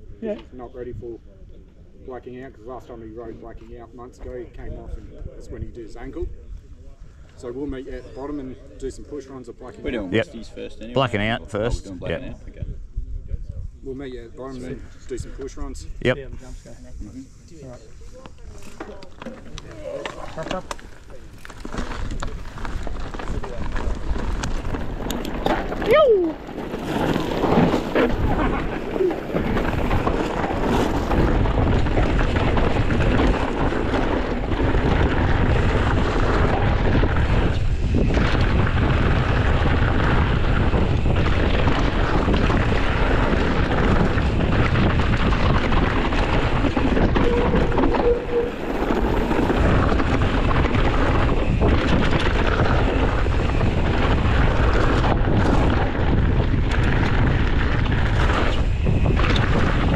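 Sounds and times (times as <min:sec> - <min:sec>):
bicycle tyre noise: 0:14.8 - 0:59.9
bike rattling over trail: 0:17.2 - 0:59.9
wind buffeting microphone: 0:19.7 - 0:59.9.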